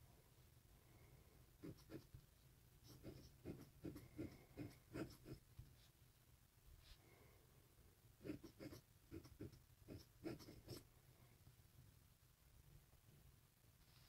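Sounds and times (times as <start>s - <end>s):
pen nib scratching on paper: 1.6s - 2.2s, 2.8s - 5.9s, 8.2s - 10.9s.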